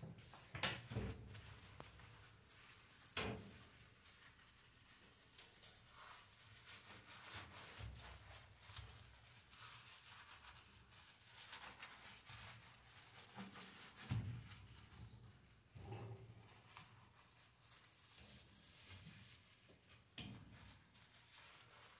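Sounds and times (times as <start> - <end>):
sponge scrubbing stovetop: 5.9 - 15.0.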